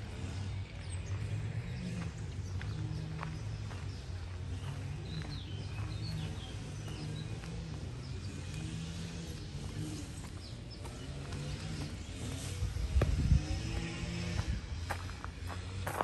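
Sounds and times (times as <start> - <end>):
distant traffic rumble: 0.0 - 16.0.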